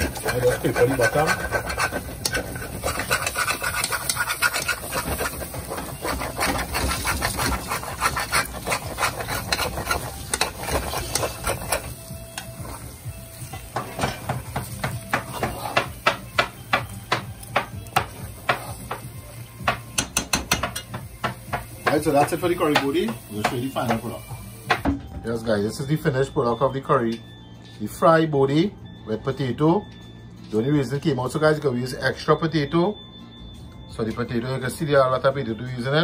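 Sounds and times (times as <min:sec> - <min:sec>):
metal spoon scraping a pan: 0:00.0 - 0:16.2.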